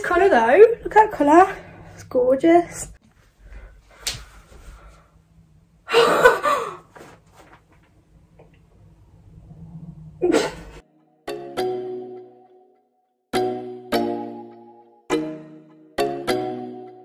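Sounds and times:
soft background music: 10.8 - 17.0.

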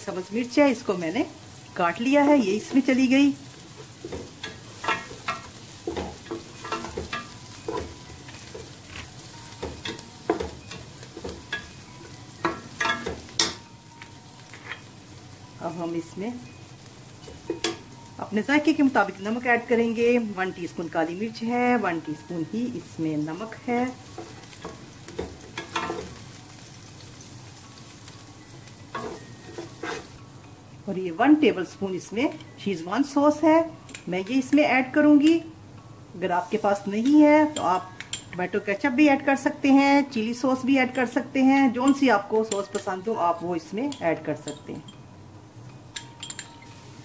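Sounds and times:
low frying sizzle: 0.0 - 47.0
spatula knocking pan: 3.9 - 13.6, 24.1 - 26.2
spatula scraping pan: 29.0 - 30.2.

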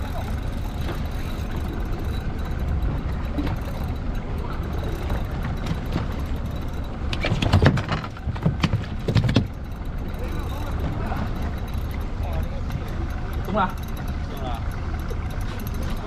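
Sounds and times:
boat engine and water rumble: 0.0 - 16.0
knocks and clatters: 0.6 - 12.1.

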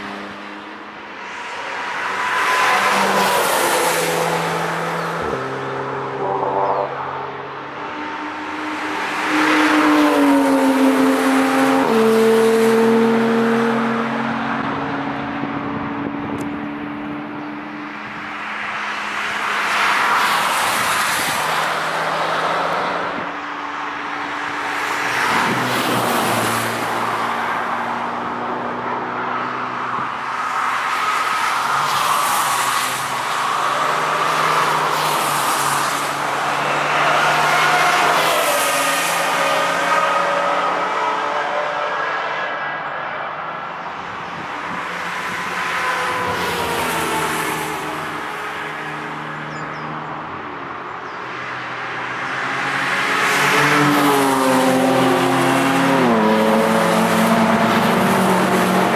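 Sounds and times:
cars passing at speed: 0.0 - 58.9
engine notes changing pitch: 5.2 - 8.3.

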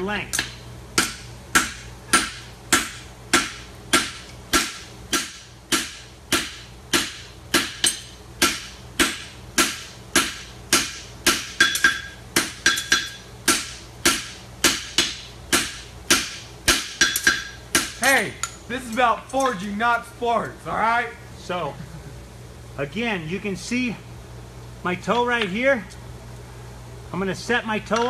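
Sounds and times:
hammer striking horseshoe on anvil: 0.3 - 18.6.

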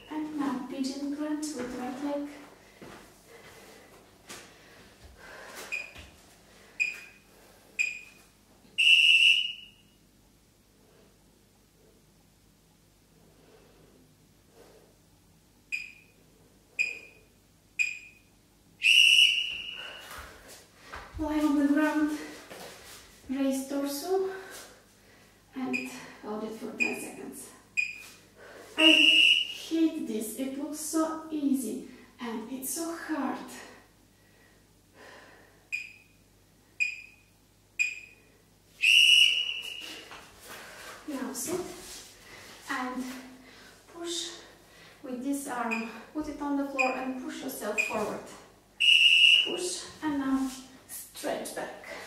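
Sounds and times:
long loud timer beep: 7.8 - 8.2, 15.7 - 16.2, 16.8 - 18.3, 27.8 - 28.0, 35.7 - 36.2, 36.8 - 38.3, 46.8 - 47.2, 47.8 - 48.1
short timer beeps: 7.8 - 8.2, 15.7 - 16.1, 17.8 - 18.2, 27.8 - 28.0, 35.7 - 36.2, 36.8 - 38.2, 47.8 - 48.0.

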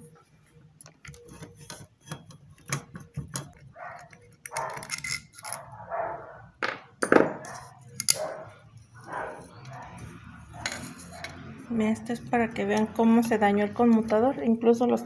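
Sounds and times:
clinks of screws and metal parts: 2.1 - 5.6, 7.4 - 8.3.

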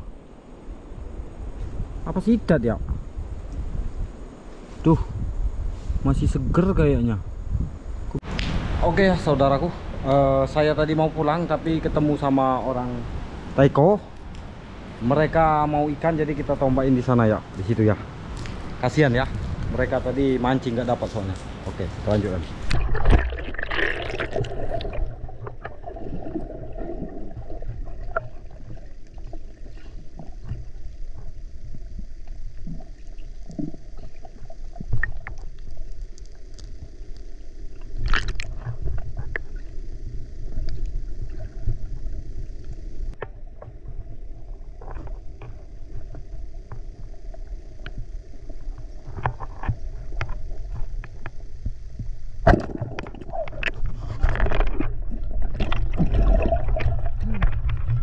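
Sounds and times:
water sloshing and gurgling: 21.6 - 58.0.

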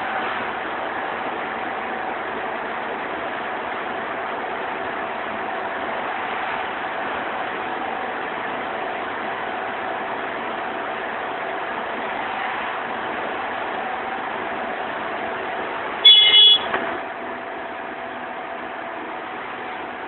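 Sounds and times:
concrete spraying pump droning: 0.0 - 20.0.

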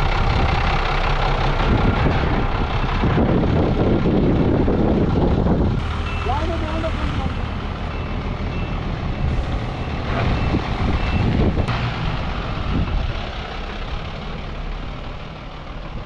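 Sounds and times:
diesel truck engine running: 0.0 - 16.0
reversing beeper: 6.0 - 11.5.

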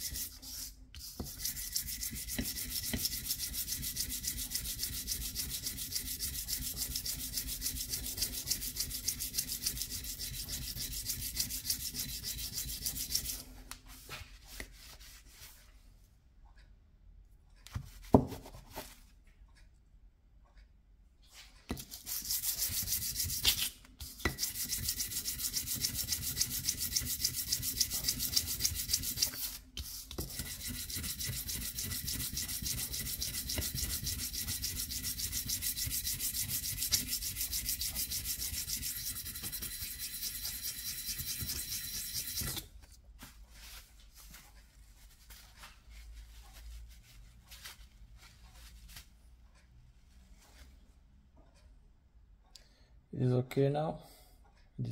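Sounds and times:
metal scraping on abrasive paper: 0.0 - 14.2, 21.8 - 42.6.

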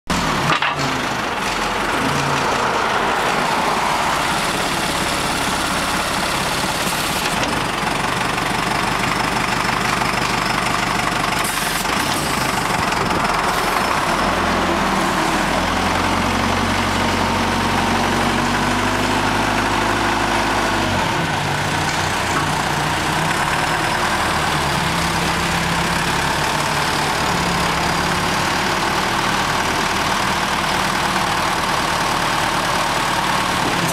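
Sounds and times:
forklift engine idling: 0.1 - 33.9.

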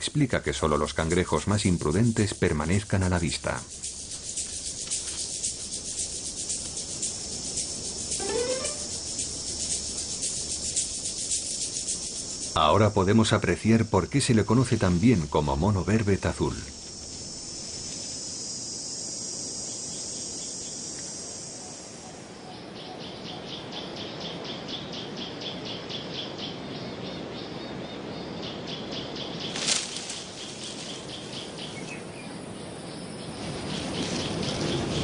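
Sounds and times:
high-pitched insect buzz: 1.8 - 12.6, 16.8 - 22.0, 29.6 - 33.4
repeated chirping call: 3.6 - 11.8.

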